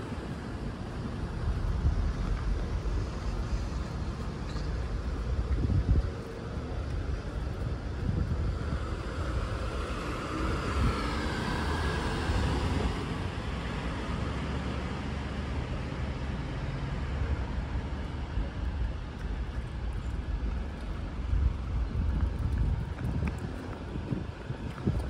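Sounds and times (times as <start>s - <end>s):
traffic low rumble: 0.0s - 25.0s
vehicle passing: 8.2s - 17.8s.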